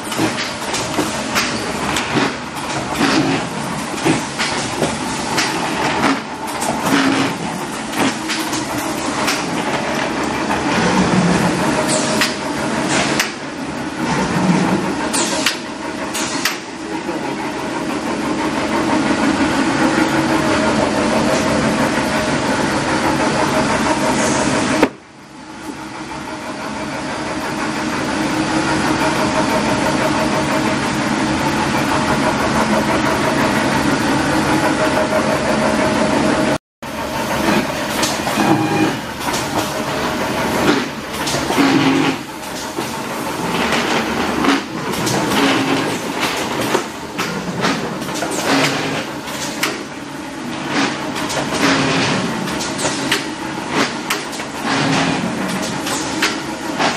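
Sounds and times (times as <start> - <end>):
sharp machine clicks and knocks: 0.0 - 10.8, 11.8 - 13.5, 39.2 - 49.9, 50.5 - 56.9
machine hum: 0.0 - 56.9.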